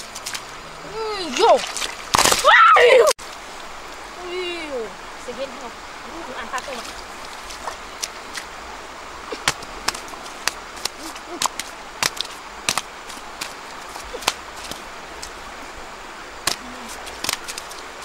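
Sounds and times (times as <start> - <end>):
river rushing: 0.0 - 18.0
fish flopping on wet mud: 9.4 - 15.4, 16.4 - 17.9.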